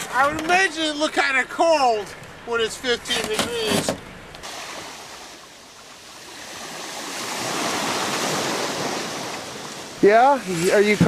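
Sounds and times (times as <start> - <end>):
rushing surf-like water: 4.4 - 11.0.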